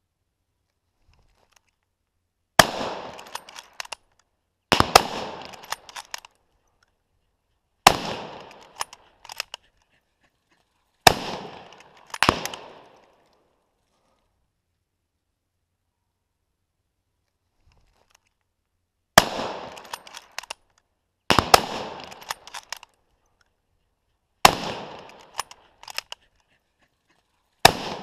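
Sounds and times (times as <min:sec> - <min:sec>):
gunshot echo rolling: 0:02.6 - 0:03.9, 0:04.7 - 0:06.2, 0:07.8 - 0:09.0, 0:11.0 - 0:13.2, 0:19.2 - 0:20.4, 0:21.3 - 0:22.8, 0:24.4 - 0:26.0, 0:27.6 - 0:28.0
rifle shots: 0:02.6 - 0:04.0, 0:04.7 - 0:06.2, 0:07.8 - 0:09.5, 0:11.0 - 0:13.1, 0:19.2 - 0:20.6, 0:21.3 - 0:22.8, 0:24.4 - 0:26.1, 0:27.6 - 0:28.0.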